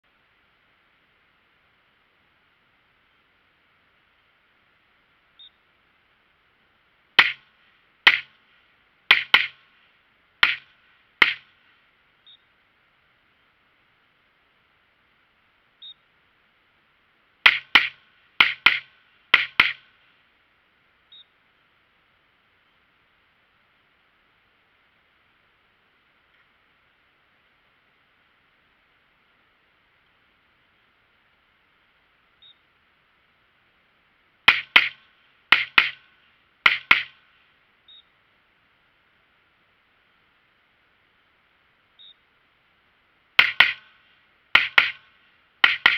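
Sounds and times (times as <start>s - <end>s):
short faint beep: 5.4s - 5.6s, 12.2s - 12.5s, 15.8s - 16.0s, 32.4s - 32.6s, 37.9s - 38.1s, 42.0s - 42.2s
gunshots: 7.2s - 8.4s, 9.1s - 9.6s, 10.4s - 11.5s, 17.5s - 19.8s, 44.6s - 45.9s.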